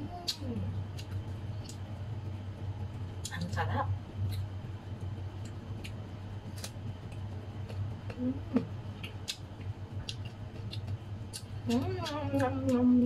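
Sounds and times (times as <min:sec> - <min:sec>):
mouth chewing with crunching clicks: 0:00.2 - 0:01.9, 0:03.2 - 0:03.6, 0:04.2 - 0:04.5, 0:05.4 - 0:08.2, 0:08.9 - 0:12.9
person humming: 0:08.1 - 0:08.7.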